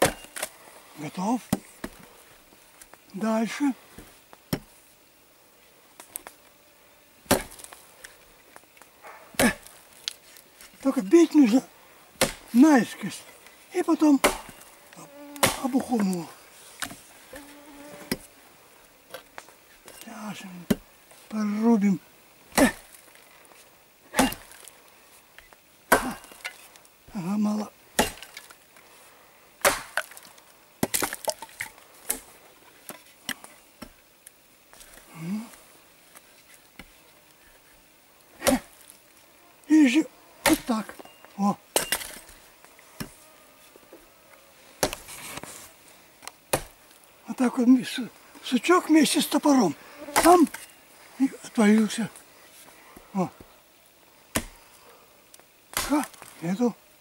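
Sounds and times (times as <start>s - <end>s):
axe chopping wood: 0.0s - 0.5s, 1.5s - 2.0s, 4.5s - 4.7s, 7.3s - 7.8s, 9.4s - 9.7s, 12.2s - 12.5s, 14.2s - 14.6s, 15.4s - 16.1s, 20.7s - 20.9s, 22.5s - 23.0s, 24.1s - 24.6s, 25.9s - 26.5s, 28.0s - 28.5s, 29.6s - 30.2s, 30.8s - 32.2s, 38.4s - 38.8s, 40.4s - 41.0s, 41.7s - 42.2s, 44.8s - 45.1s, 46.5s - 46.8s, 50.2s - 50.6s, 54.3s - 54.6s, 55.7s - 56.3s
wood cracking: 29.6s - 33.9s, 40.4s - 41.0s, 55.7s - 56.4s.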